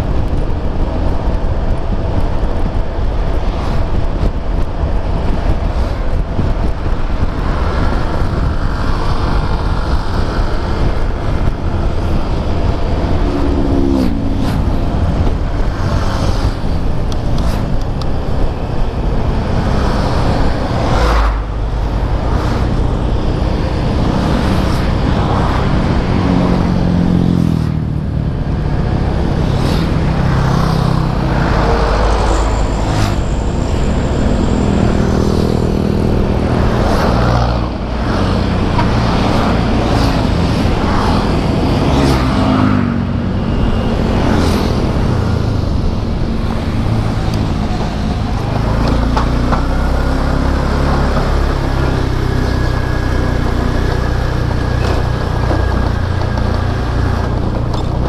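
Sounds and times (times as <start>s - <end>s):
road and traffic noise: 0.0s - 58.0s.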